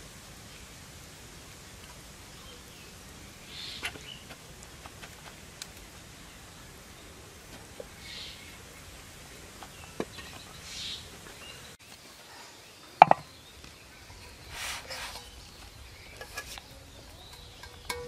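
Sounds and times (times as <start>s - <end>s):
soft scraping: 14.2s - 16.8s
metal spoon clinking on cookware: 17.2s - 18.0s.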